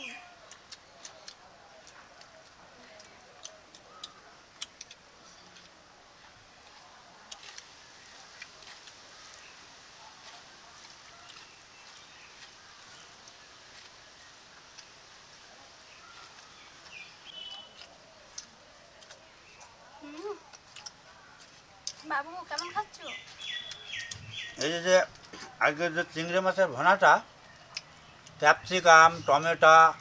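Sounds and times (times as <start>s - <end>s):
clicks and taps of eating: 0.4s - 5.8s, 17.7s - 25.5s.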